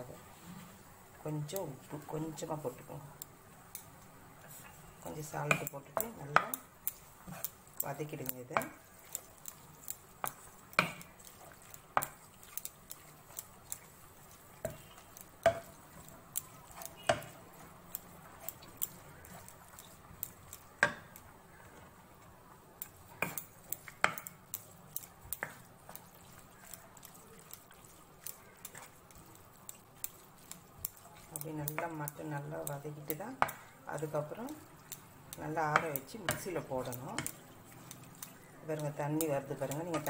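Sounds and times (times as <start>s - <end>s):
spatula scraping and knocking on pan: 5.4s - 7.6s, 8.5s - 21.2s, 22.9s - 26.0s, 33.3s - 33.7s.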